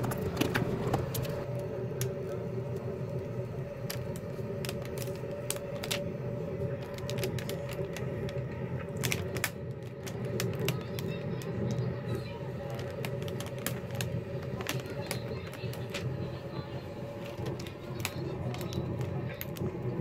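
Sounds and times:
steady low hum: 0:00.0 - 0:20.0
tape crinkling and clicking: 0:03.8 - 0:16.3, 0:17.2 - 0:20.0.

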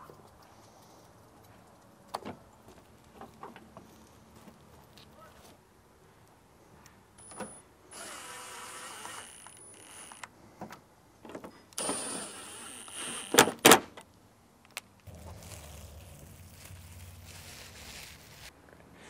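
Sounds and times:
small electric motor whirring: 0:07.9 - 0:10.3, 0:11.8 - 0:13.4.

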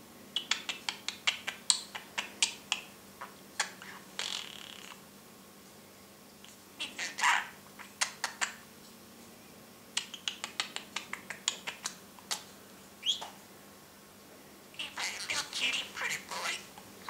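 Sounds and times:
budgerigar chattering: 0:03.6 - 0:05.0, 0:06.8 - 0:08.6, 0:13.0 - 0:13.3, 0:14.8 - 0:16.7.

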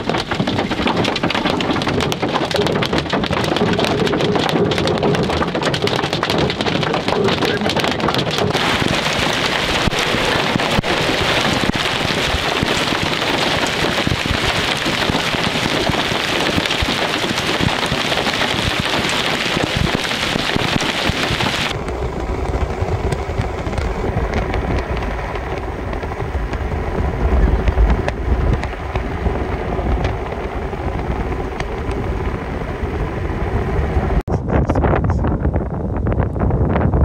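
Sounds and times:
rain and hail hissing: 0:00.0 - 0:21.8
hailstones ticking: 0:00.0 - 0:32.3
low rumble: 0:00.0 - 0:37.0.

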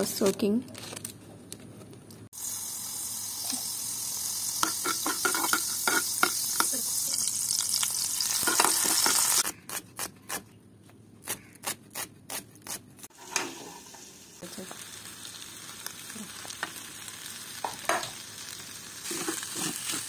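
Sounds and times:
oil sizzling in a pan: 0:02.4 - 0:09.4, 0:13.1 - 0:20.0.

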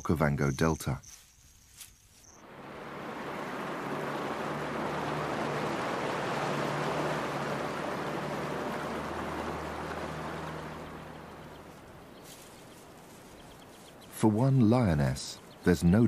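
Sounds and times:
water splashing under wheels: 0:02.4 - 0:15.8
low engine hum: 0:02.4 - 0:16.0.

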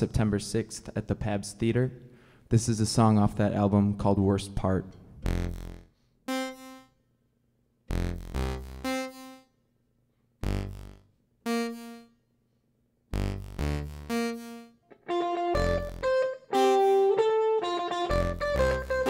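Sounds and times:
electronic keyboard chords: 0:05.2 - 0:07.0, 0:07.9 - 0:09.5, 0:10.4 - 0:12.2, 0:13.1 - 0:19.0.

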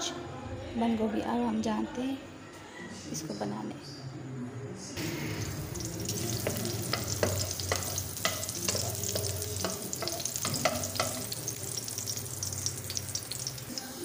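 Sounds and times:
garlic sizzling in hot oil: 0:05.0 - 0:14.0
spoon knocking against wok: 0:05.8 - 0:13.6.

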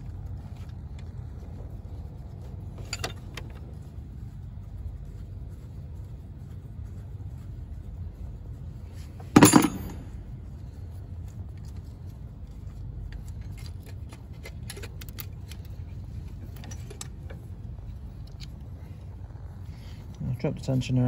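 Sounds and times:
loud metallic clank: 0:09.3 - 0:10.2
spanner clicking and rattling: 0:09.3 - 0:10.2, 0:13.1 - 0:17.5.

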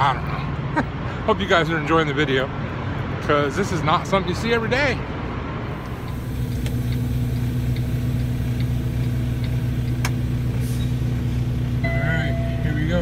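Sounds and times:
diesel engine running: 0:00.0 - 0:13.0.

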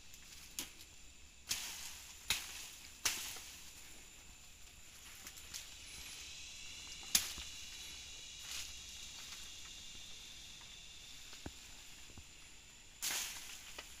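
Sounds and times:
dry leaves rustling: 0:00.0 - 0:14.0
high insect drone: 0:00.0 - 0:14.0
sharp crack: 0:07.0 - 0:07.4.

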